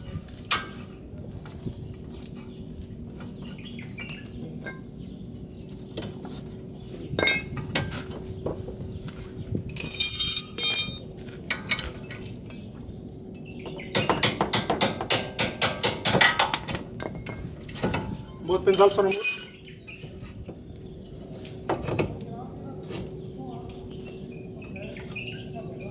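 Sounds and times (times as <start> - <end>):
ringing metal clink: 7.2 - 7.8, 9.7 - 11.5, 12.5 - 12.8, 18.2 - 19.8.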